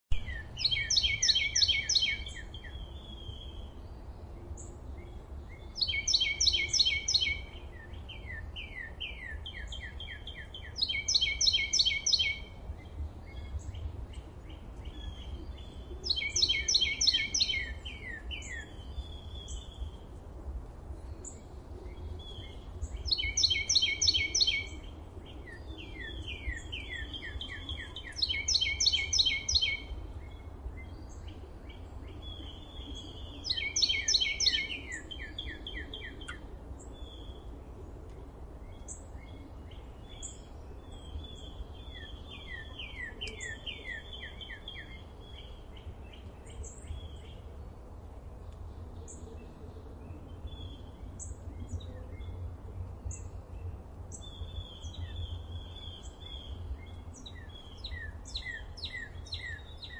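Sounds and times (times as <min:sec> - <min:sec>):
soft bird chirps: 0:00.1 - 0:20.2, 0:20.9 - 0:47.6, 0:48.4 - 0:59.9
songbird singing: 0:00.1 - 0:59.9
steady low rumble: 0:12.4 - 0:59.9.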